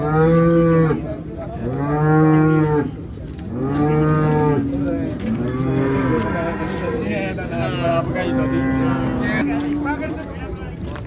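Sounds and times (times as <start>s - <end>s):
cow mooing: 3.6s - 6.8s, 7.6s - 9.7s.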